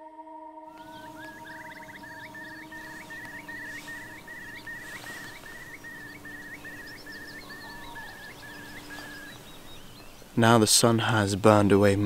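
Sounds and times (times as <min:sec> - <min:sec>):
bird repeating rising note: 0:00.0 - 0:10.4
steady low drone: 0:00.0 - 0:10.4
birds chirping faintly: 0:00.7 - 0:12.0.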